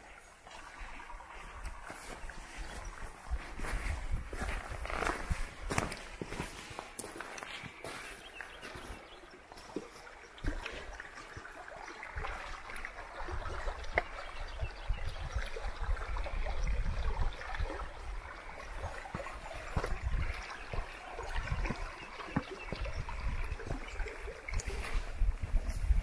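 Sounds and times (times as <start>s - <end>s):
creek running and trickling: 0.0s - 26.0s
footsteps: 0.2s - 9.0s.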